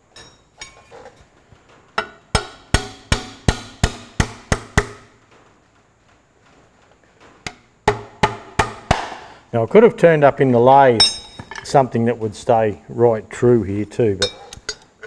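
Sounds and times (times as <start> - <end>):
hammer striking steel: 2.0 - 5.2, 7.5 - 9.3, 11.0 - 11.5.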